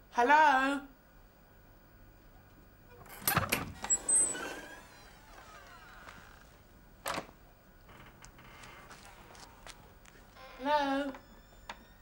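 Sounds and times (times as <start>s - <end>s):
door creaking: 2.9s - 12.0s.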